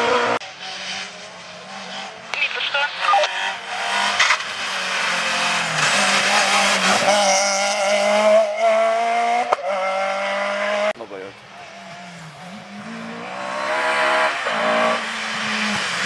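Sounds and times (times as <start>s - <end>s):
rally car engine passing: 0.0s - 16.0s.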